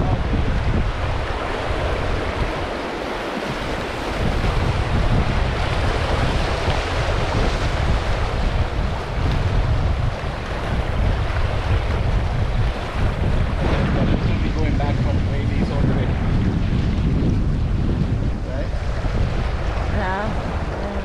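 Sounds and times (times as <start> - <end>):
river water rushing: 0.0 - 14.0
wind buffeting microphone: 0.0 - 21.0.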